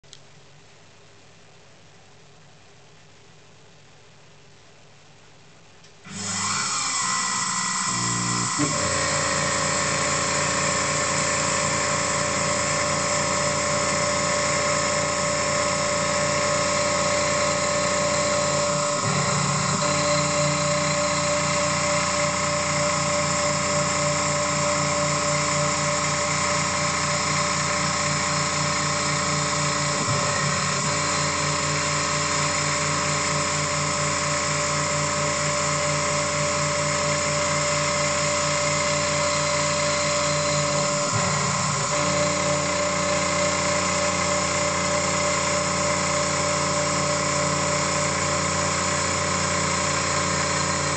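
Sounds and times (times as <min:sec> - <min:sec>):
milling machine spindle whine: 0:06.1 - 0:50.9.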